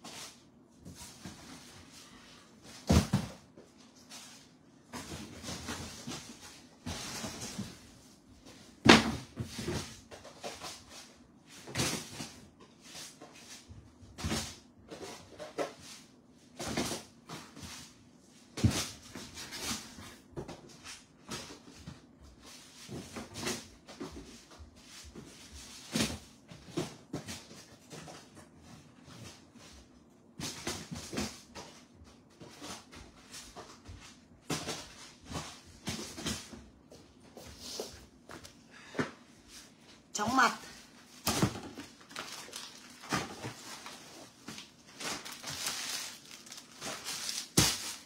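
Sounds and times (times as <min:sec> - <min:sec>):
packages knocking and bumping: 0:02.6 - 0:03.6, 0:41.0 - 0:48.0.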